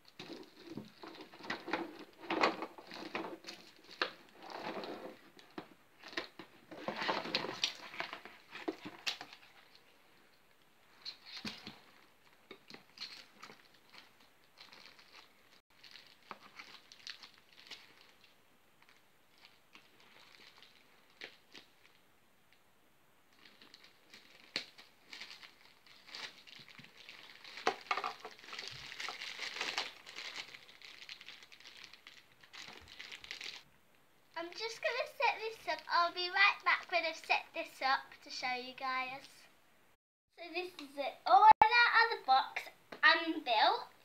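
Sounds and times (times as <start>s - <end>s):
plastic wrapping crinkling: 0.0s - 22.0s, 23.3s - 33.7s.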